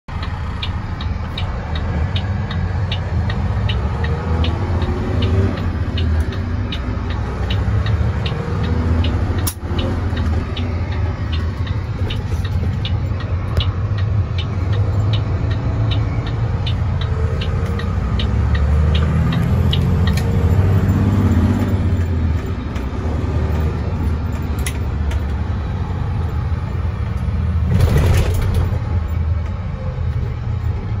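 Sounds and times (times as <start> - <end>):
regular ticking: 0.1 - 27.6
truck diesel engine revving: 0.1 - 31.0.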